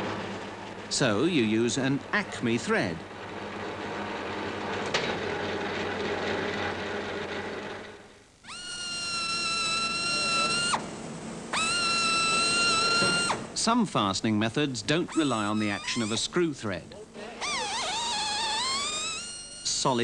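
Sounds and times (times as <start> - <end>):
pneumatic drill whining: 3.2 - 13.6, 15.0 - 16.4, 17.3 - 20.0.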